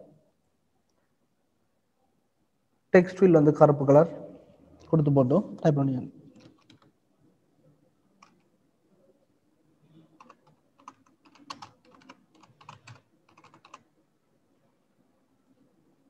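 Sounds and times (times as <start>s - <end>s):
typing on computer keyboard: 6.3s - 7.0s, 8.2s - 8.5s, 10.2s - 13.9s.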